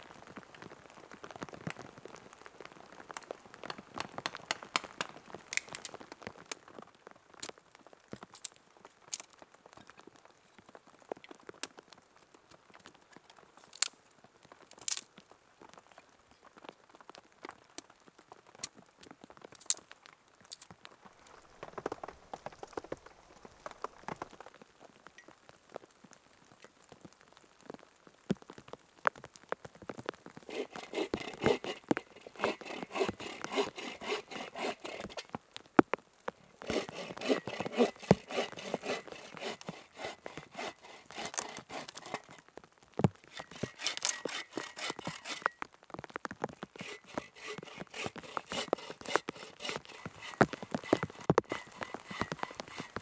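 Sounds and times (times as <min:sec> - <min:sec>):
twigs snapping: 0:03.7 - 0:06.6, 0:30.4 - 0:35.4, 0:36.6 - 0:42.4, 0:43.2 - 0:45.5, 0:46.7 - 0:53.0
footsteps on forest floor: 0:30.5 - 0:35.3, 0:36.5 - 0:42.4, 0:43.3 - 0:45.6, 0:46.6 - 0:53.0
hand saw cutting wood: 0:30.5 - 0:35.4, 0:36.5 - 0:42.4, 0:43.3 - 0:45.5, 0:46.8 - 0:53.0.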